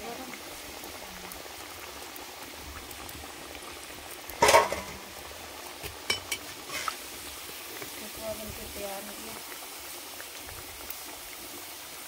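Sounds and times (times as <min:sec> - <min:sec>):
oil sizzling: 0:00.0 - 0:12.0.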